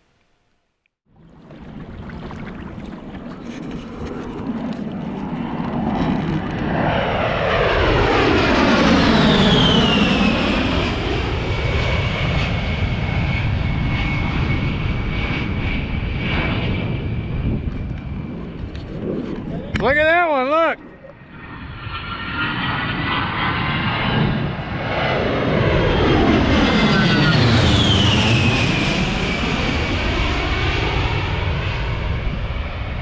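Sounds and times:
jet flying low overhead: 0:01.1 - 0:33.0
deep rumble: 0:01.2 - 0:19.8.

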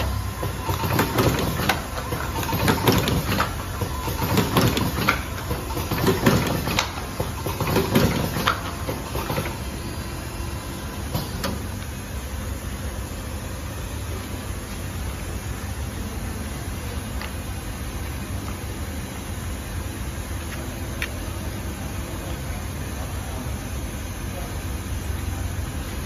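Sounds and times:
packaging machine clattering: 0:00.0 - 0:09.7
steady mechanical hum: 0:00.0 - 0:26.0.

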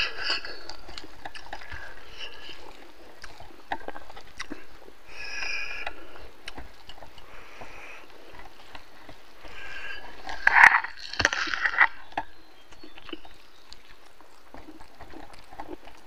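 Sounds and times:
chewing clicks and smacks: 0:00.0 - 0:16.0
fingers mixing rice: 0:00.0 - 0:16.0.

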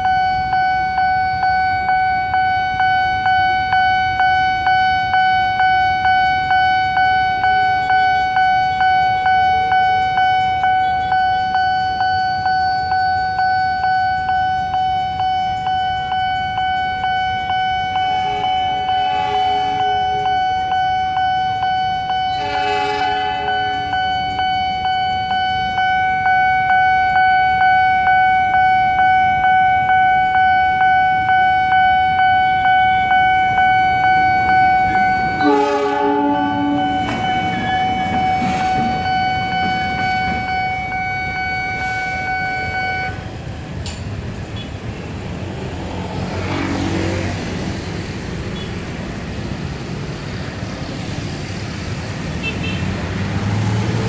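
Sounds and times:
railroad crossing bell ringing: 0:00.0 - 0:46.9
train horn blasts: 0:18.2 - 0:20.3, 0:22.2 - 0:23.8, 0:34.8 - 0:40.4.

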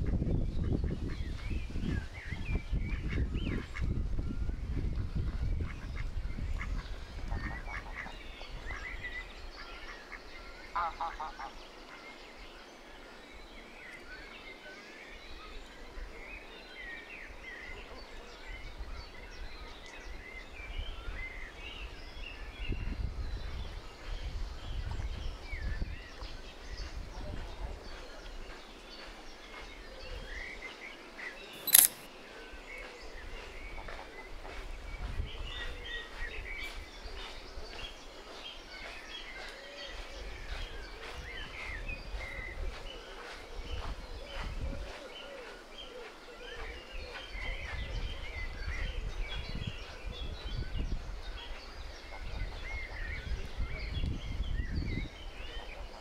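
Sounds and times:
small birds chirping: 0:25.0 - 0:56.0
sharp click: 0:31.6 - 0:32.1.

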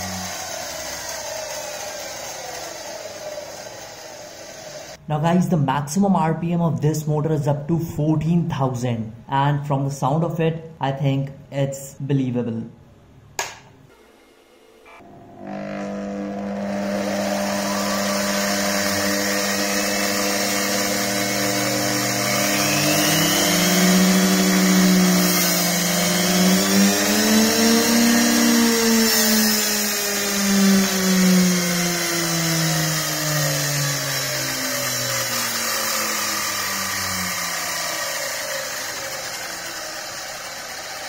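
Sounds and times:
electric motor whining: 0:00.0 - 0:05.0, 0:14.0 - 0:41.0.

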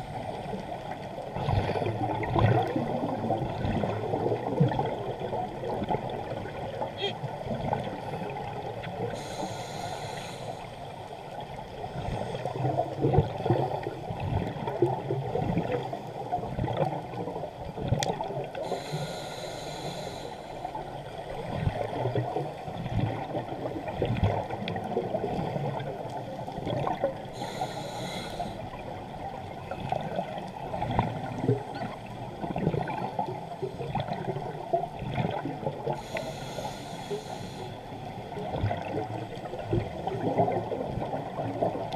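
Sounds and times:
regulator hiss: 0:09.2 - 0:10.7, 0:18.6 - 0:20.6, 0:27.4 - 0:28.6, 0:36.0 - 0:37.8.

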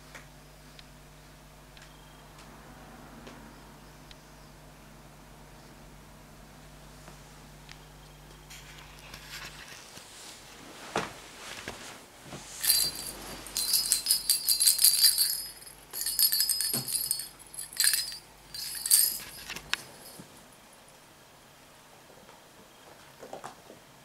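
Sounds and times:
cat-toy bell jingling: 0:12.6 - 0:20.3.

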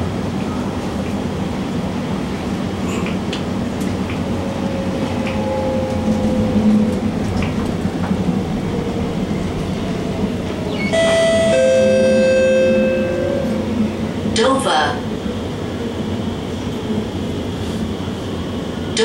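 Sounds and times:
train wheels rumbling on track: 0:00.0 - 0:19.0
announcement chime: 0:10.7 - 0:13.6.

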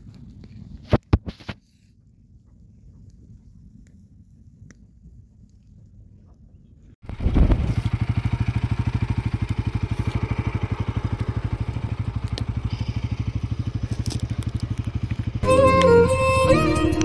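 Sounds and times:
engine idling: 0:07.1 - 0:17.0.

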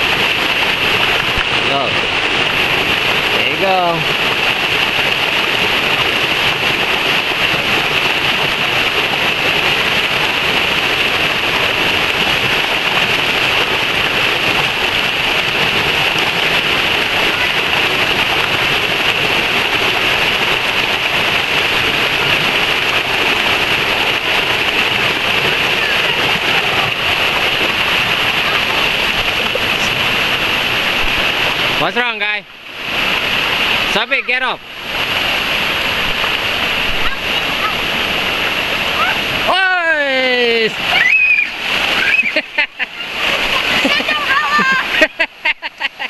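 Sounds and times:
creek water rushing over rock: 0:00.0 - 0:46.0.

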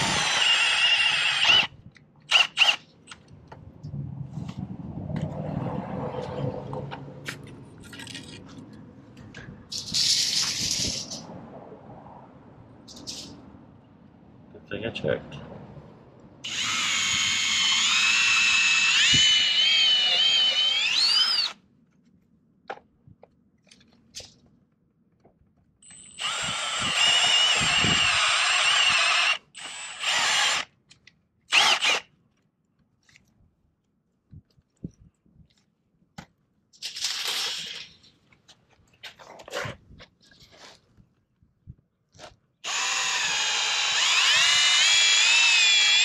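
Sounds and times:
cordless drill whining: 0:00.0 - 0:01.7, 0:02.3 - 0:02.8, 0:16.4 - 0:21.6, 0:25.9 - 0:30.7, 0:31.5 - 0:32.0, 0:42.6 - 0:46.0.

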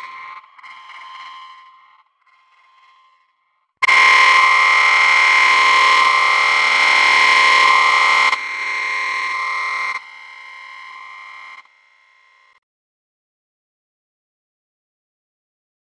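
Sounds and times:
harsh electronic synth noise: 0:03.8 - 0:11.6.

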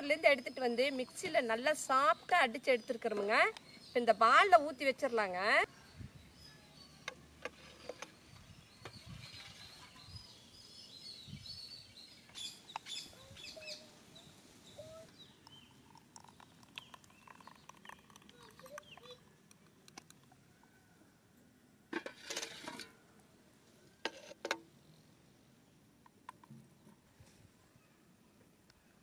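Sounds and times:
birds chirping: 0:00.0 - 0:19.5.

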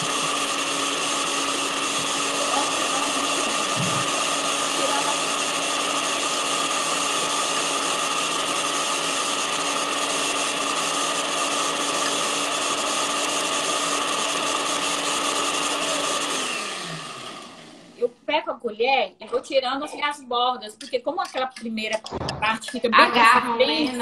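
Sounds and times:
blender motor whine: 0:00.0 - 0:18.0.

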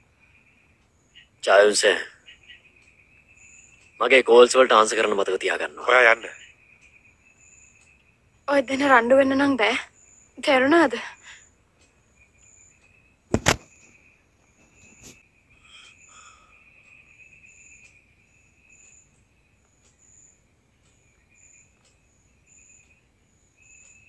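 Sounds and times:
faint high chirping insects: 0:00.0 - 0:24.0
sharp knock: 0:13.3 - 0:13.8.

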